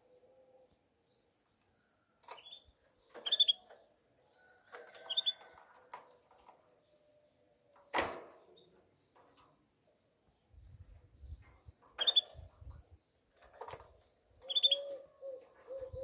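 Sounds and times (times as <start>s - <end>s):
canary chirping: 2.3s - 3.8s, 5.0s - 5.5s, 11.2s - 13.2s, 14.1s - 15.0s.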